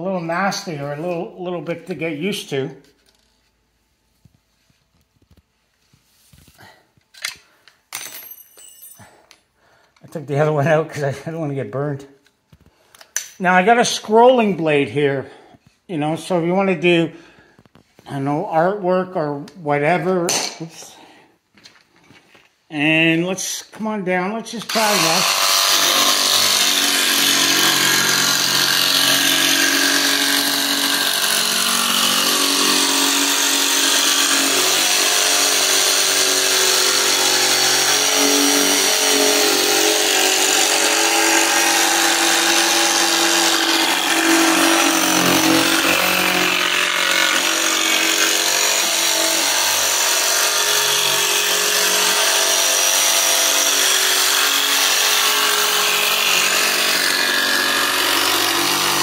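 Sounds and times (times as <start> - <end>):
jigsaw cutting plywood: 24.6 - 59.0.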